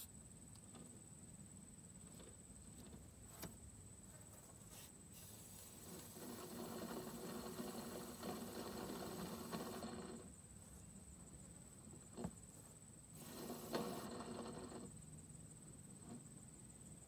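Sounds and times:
spray can hissing: 0:13.2 - 0:14.0.

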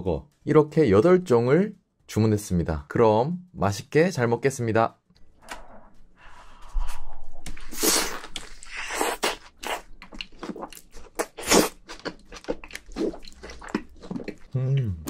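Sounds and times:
biting and chewing hamburger: 0:07.5 - 0:15.0.

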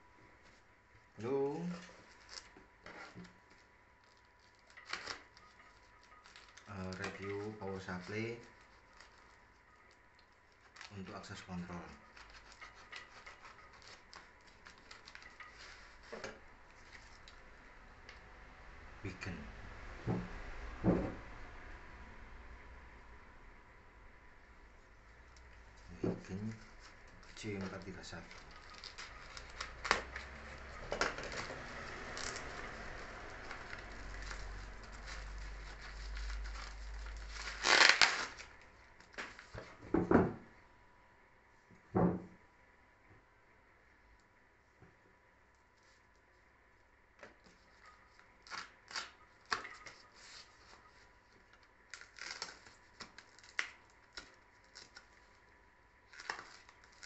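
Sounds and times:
plastic packaging crinkling: 0:01.2 - 0:17.4, 0:25.9 - 0:39.8, 0:47.4 - 0:57.0
plastic parcel rustling: 0:01.2 - 0:17.4, 0:25.8 - 0:40.0, 0:47.2 - 0:57.0
louder knock: 0:20.1 - 0:21.2.

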